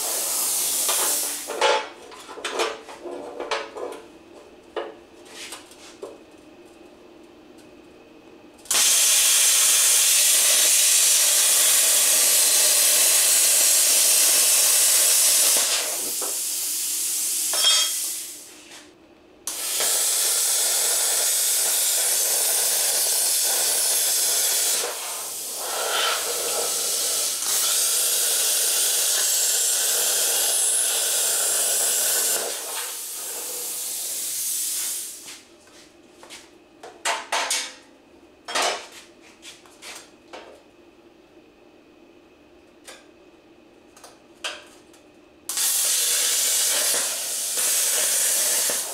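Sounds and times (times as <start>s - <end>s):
plasma cutter hissing: 0.0s - 1.5s, 8.7s - 18.5s, 19.5s - 35.2s, 45.5s - 48.9s.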